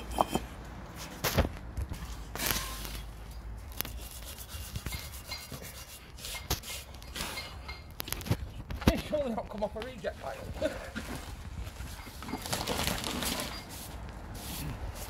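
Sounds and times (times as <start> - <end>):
bricks scraping and knocking: 0.0 - 1.5.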